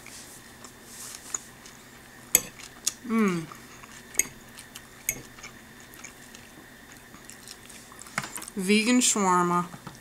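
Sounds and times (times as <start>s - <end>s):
metal fork clinking on plate: 2.4s - 2.6s.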